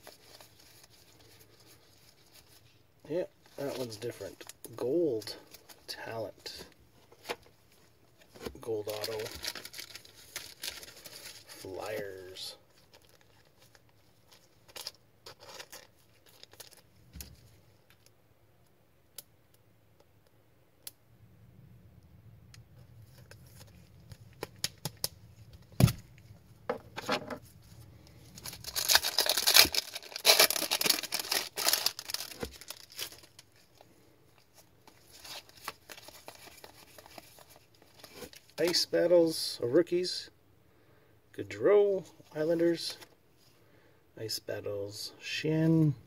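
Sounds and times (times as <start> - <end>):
cards rustling: 3.4 - 7.5, 8.2 - 17.5, 27.0 - 38.9
wrapper crinkling and tearing: 8.8 - 12.1, 12.7 - 16.8, 28.2 - 33.8, 34.4 - 38.8.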